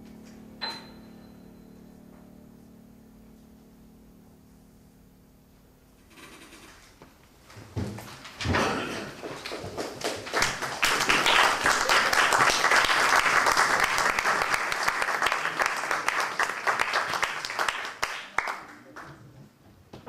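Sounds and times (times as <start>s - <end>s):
audience applauding: 9.2s - 19.4s.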